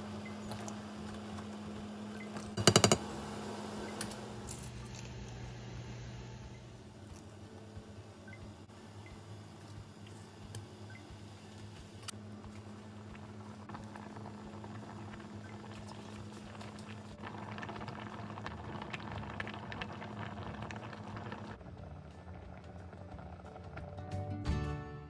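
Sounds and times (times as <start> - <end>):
soup boiling with bubbling pops: 12.1 - 24.0.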